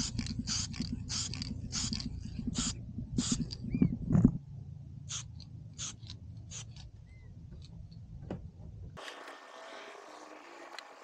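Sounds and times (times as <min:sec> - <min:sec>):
aerosol can mixing ball rattling: 0:00.0 - 0:03.8
low wind rumble: 0:00.0 - 0:05.8.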